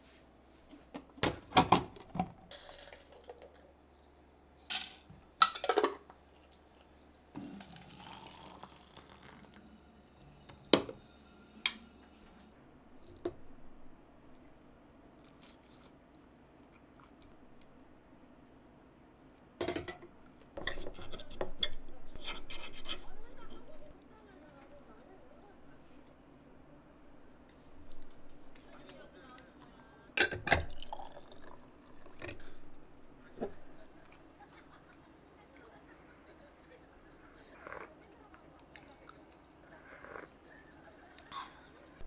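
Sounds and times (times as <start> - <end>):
glass clinking on countertop: 19.6 - 20.1
cutlery scraping a ceramic plate: 20.6 - 23.6.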